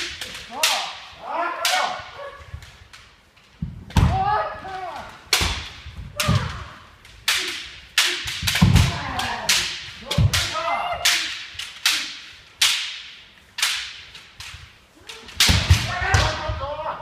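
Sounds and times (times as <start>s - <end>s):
people shouting: 0.0s - 2.5s, 4.0s - 5.2s, 6.2s - 12.3s, 15.0s - 17.0s
bamboo swords striking armour: 3.9s - 14.0s, 15.2s - 16.6s.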